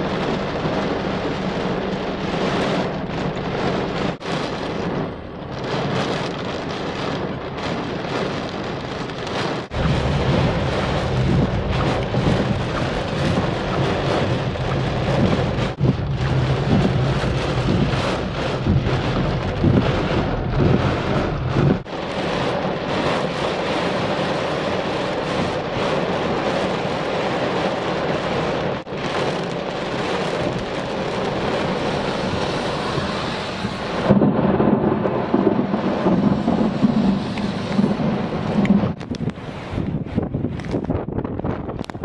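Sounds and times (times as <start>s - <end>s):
car low hum: 0.0s - 22.6s
heavy rain on car roof: 0.0s - 42.0s.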